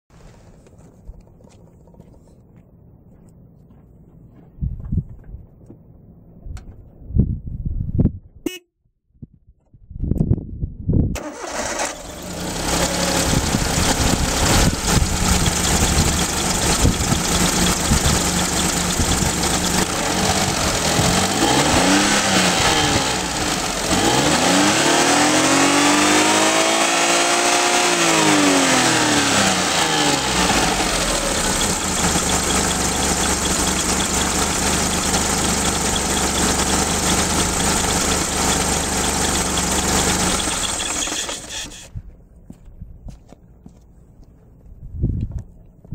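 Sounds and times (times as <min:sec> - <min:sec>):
engine revving: 0:11.2 - 0:41.9
car engine starting and idling: 0:11.2 - 0:42.0.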